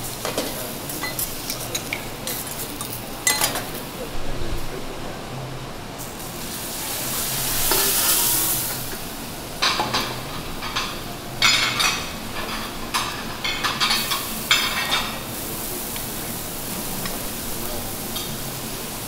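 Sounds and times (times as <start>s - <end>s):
water hissing into steam on griddle: 6.0s - 12.0s, 12.9s - 19.0s
shellfish sizzling and spitting: 6.0s - 19.0s.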